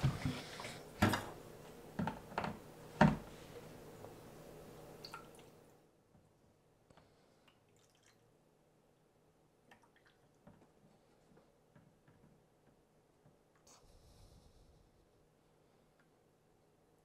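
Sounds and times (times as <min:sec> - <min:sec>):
faint trickle of water: 0:05.0 - 0:05.7, 0:07.2 - 0:08.3.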